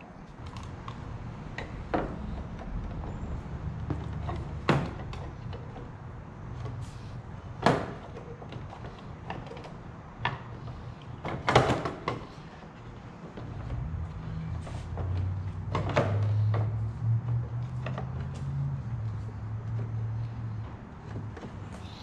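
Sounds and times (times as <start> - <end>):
plastic body parts clicking and knocking: 7.6 - 13.8.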